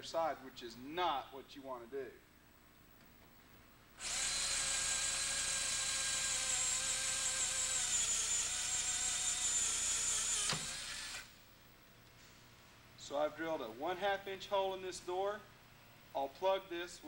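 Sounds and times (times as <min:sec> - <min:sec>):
electric drill cutting steel: 0:04.0 - 0:11.4.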